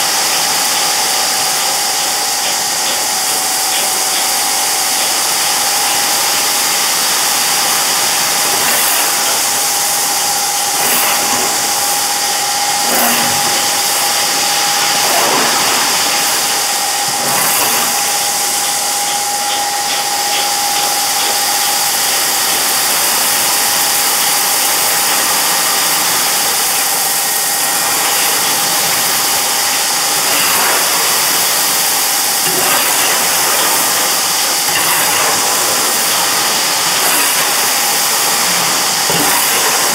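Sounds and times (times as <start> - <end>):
machine hum: 0.0 - 39.9.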